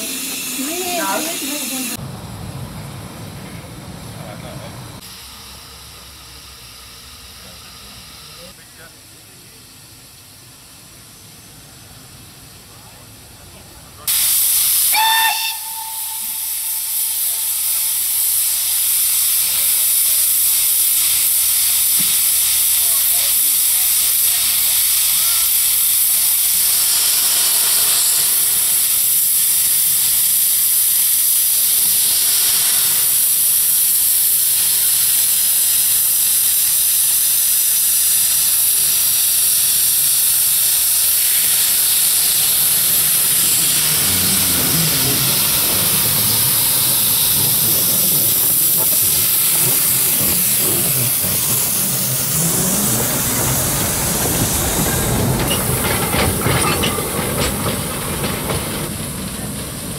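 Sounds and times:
steam jetting from cylinders: 0.0s - 2.0s, 5.0s - 59.9s
low rumble of train moving: 0.0s - 59.9s
steam locomotive hissing steam: 0.0s - 59.9s.

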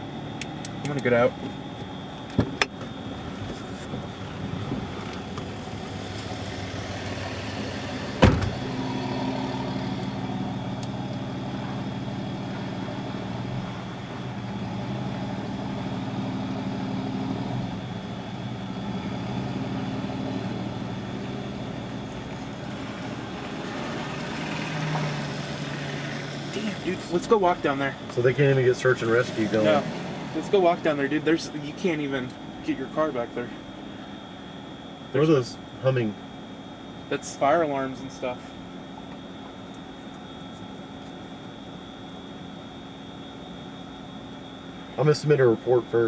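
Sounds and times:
car engine idling: 0.0s - 34.8s
car door slamming shut: 8.1s - 8.8s.

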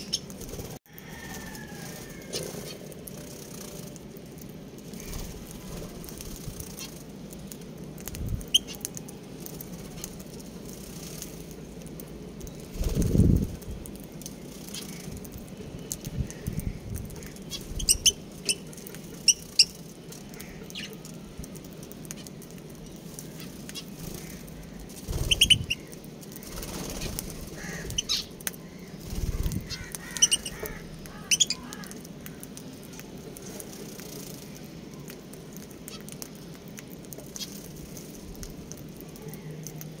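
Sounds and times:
birds chirping sharply: 23.4s - 32.0s.

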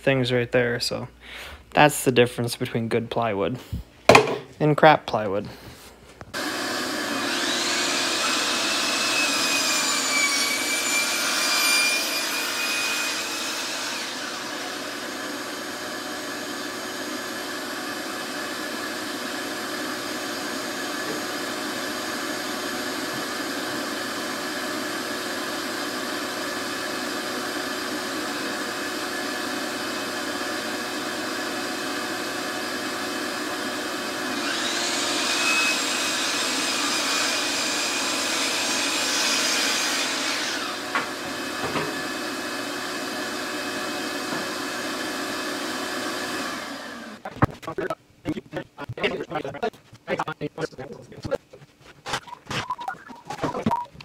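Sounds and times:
shop vacuum running: 5.7s - 47.4s
saw motor whine: 6.4s - 47.3s.

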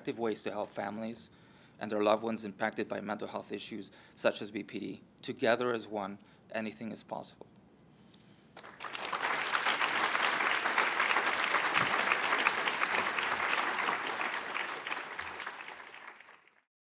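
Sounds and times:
audience applauding: 8.6s - 16.7s.

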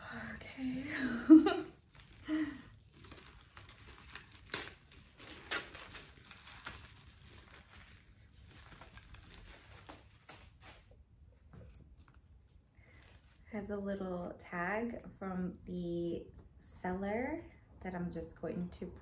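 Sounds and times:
paper wrapping crinkling: 1.0s - 11.0s.

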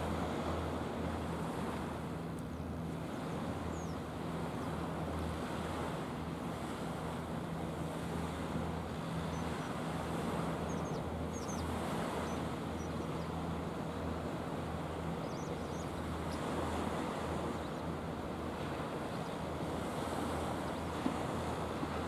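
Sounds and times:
waves washing against shore: 0.0s - 22.0s
wind: 0.0s - 22.0s
faint high bird chirps: 3.7s - 4.0s, 10.6s - 13.4s, 15.2s - 16.5s.

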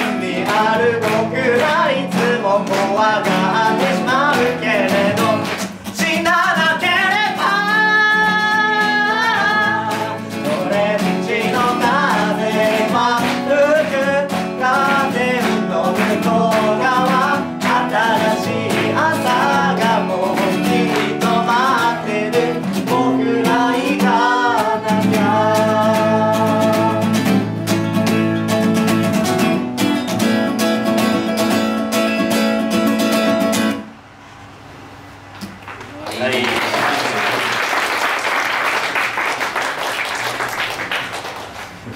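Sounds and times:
voices singing together: 0.0s - 27.4s
acoustic guitar strummed: 0.0s - 34.0s.

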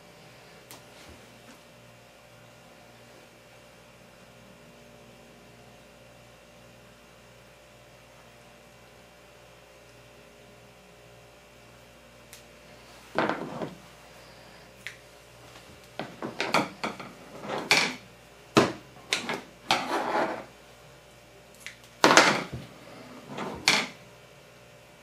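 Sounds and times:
twine rustling and scraping: 12.9s - 13.8s, 16.0s - 18.0s, 19.0s - 20.5s, 22.2s - 24.0s.

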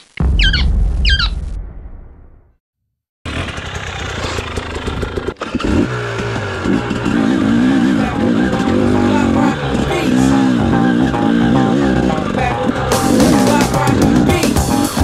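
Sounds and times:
motorcycle engine revving: 3.3s - 15.0s.

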